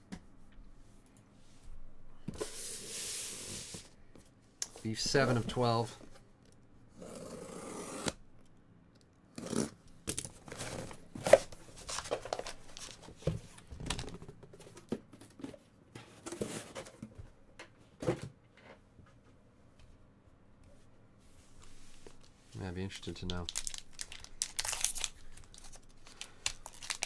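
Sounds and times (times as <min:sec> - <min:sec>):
foil packs crinkling: 0:23.1 - 0:27.0.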